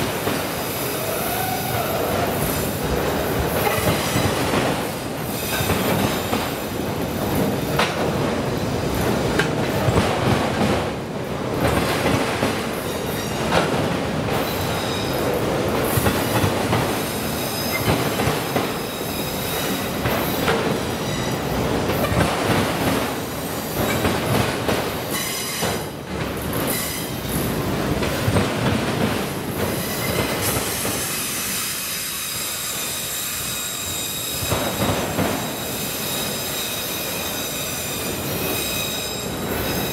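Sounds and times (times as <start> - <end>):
train wheels clacking over crossing: 0.0 - 39.9
steel wheel squeal: 29.8 - 39.9.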